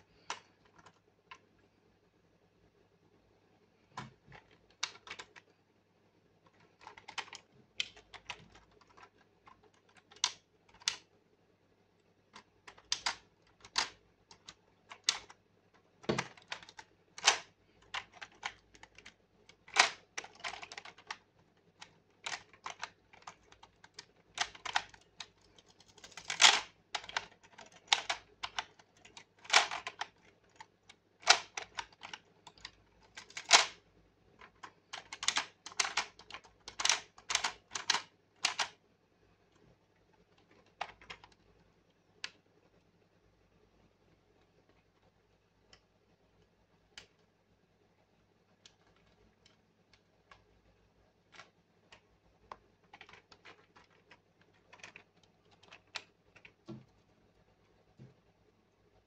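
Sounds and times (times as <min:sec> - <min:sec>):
plastic toy clicking and clacking: 0:04.0 - 0:05.5, 0:06.5 - 0:11.1, 0:12.3 - 0:33.8, 0:34.4 - 0:38.8, 0:40.4 - 0:41.4, 0:51.3 - 0:56.8.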